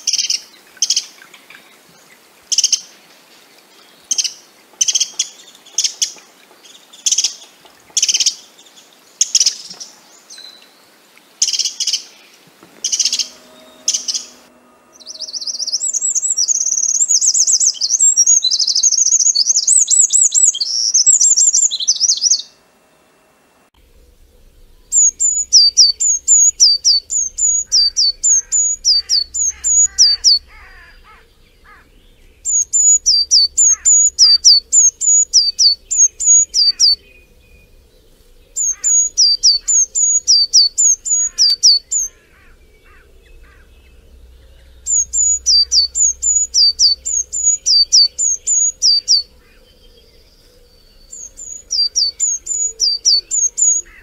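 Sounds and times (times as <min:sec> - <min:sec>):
faint bird chirps: 0:09.2 - 0:23.1, 0:23.8 - 0:54.0
songbird whistling: 0:12.8 - 0:22.6, 0:24.7 - 0:54.0.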